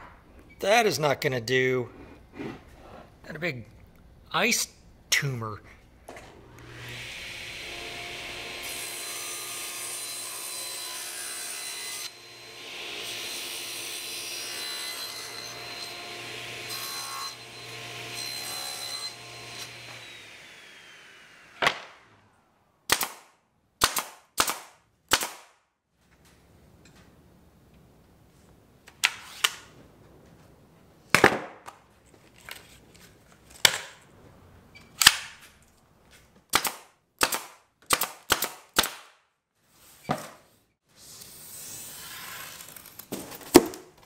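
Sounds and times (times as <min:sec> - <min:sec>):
table saw cutting plywood: 0:06.3 - 0:21.7, 0:41.2 - 0:42.9
nail gun shots: 0:21.6 - 0:22.0, 0:22.9 - 0:25.6, 0:35.0 - 0:35.4, 0:36.5 - 0:39.2.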